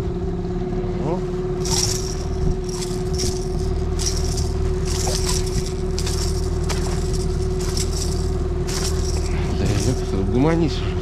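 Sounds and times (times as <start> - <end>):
boat motor humming: 0.0 - 11.0
lure and net rattling: 1.6 - 10.2.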